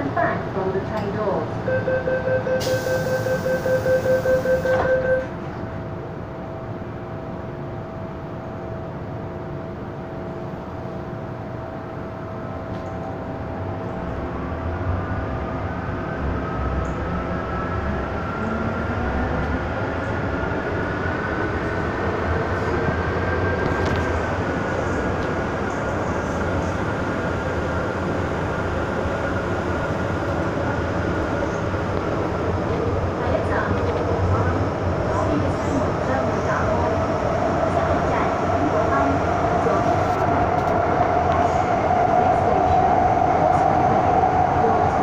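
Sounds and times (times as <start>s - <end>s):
train door warning beeps: 1.6s - 5.4s
train running rumble: 4.7s - 45.0s.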